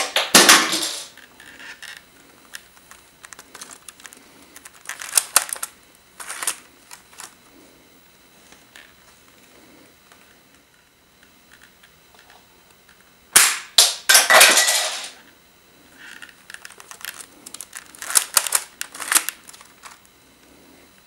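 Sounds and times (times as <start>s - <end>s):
sharp plastic snap: 13.4s - 14.0s.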